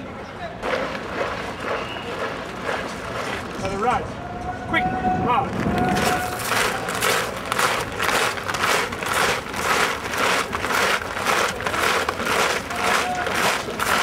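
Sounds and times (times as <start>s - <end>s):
marching band: 0.6s - 4.1s, 5.2s - 14.0s
boots crunching on gravel in step: 6.0s - 14.0s.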